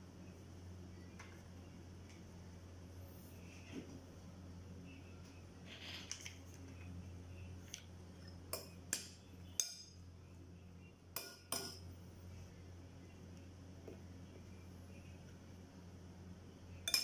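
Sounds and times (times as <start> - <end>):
utensils clinking against dishes: 11.2 - 11.9.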